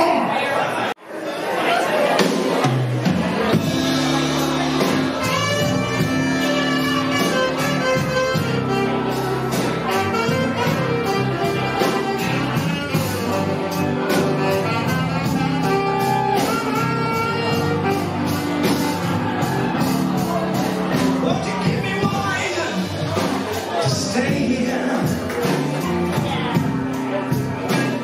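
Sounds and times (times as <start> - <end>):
keyboards: 0.0 - 28.0
drums: 1.5 - 28.0
electric bass: 3.0 - 28.0
electric guitar: 3.0 - 28.0
tenor saxophone lead: 3.6 - 21.8.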